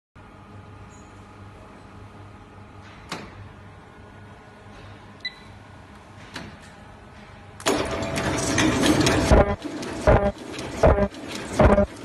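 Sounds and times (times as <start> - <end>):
machine beep: 5.2 - 5.5, 9.3 - 11.9
mechanical clattering: 6.2 - 12.0
machine humming: 7.6 - 12.0.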